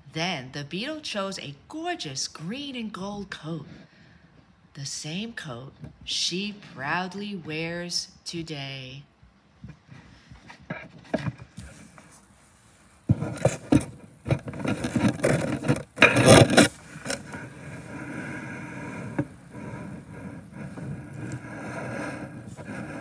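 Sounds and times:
paper pages rustling: 0:13.1 - 0:18.0.

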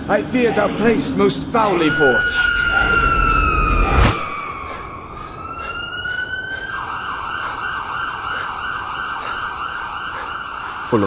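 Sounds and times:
siren-like warbling wail: 0:00.2 - 0:11.0.

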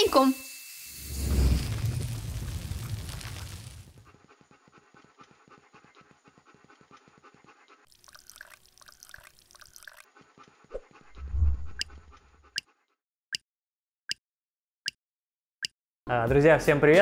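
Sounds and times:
dog panting: 0:04.0 - 0:07.9, 0:10.0 - 0:12.9.

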